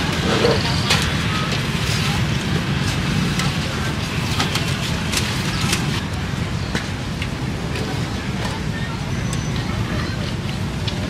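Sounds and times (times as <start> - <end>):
scattered clicks and knocks: 0.0 - 8.6
traffic rumble: 0.0 - 11.0.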